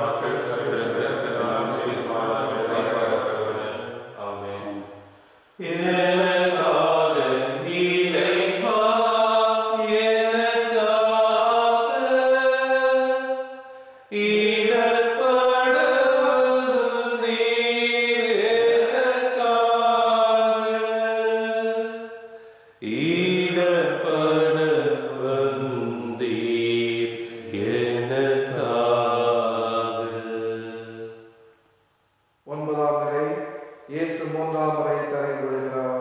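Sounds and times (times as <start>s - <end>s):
person singing a hymn: 0.0s - 4.8s, 5.6s - 13.5s, 14.1s - 22.2s, 22.8s - 31.2s.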